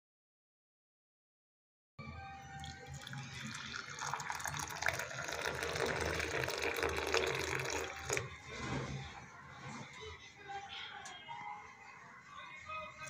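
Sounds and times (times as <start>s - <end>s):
tea pouring into a cup: 2.5s - 8.6s.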